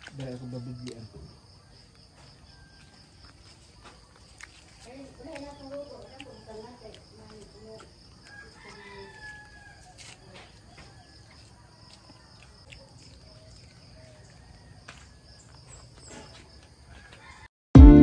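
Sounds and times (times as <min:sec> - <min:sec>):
rooster crowing: 0:00.4 - 0:03.3, 0:08.2 - 0:12.4, 0:14.0 - 0:15.6, 0:16.8 - 0:17.5.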